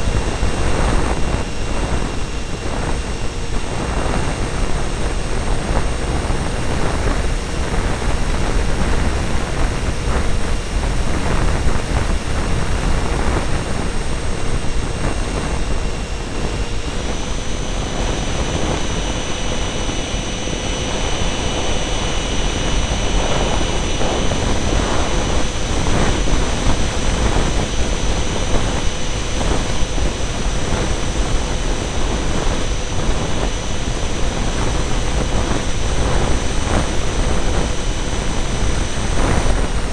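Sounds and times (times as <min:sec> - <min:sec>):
electric ducted fans whining: 0:00.0 - 0:39.9
wind on microphone: 0:00.0 - 0:39.9.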